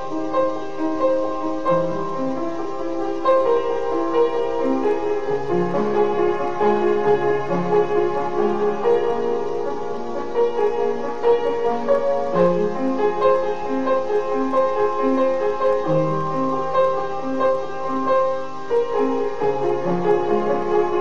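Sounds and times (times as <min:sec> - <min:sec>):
slow piano music: 0:00.0 - 0:21.0.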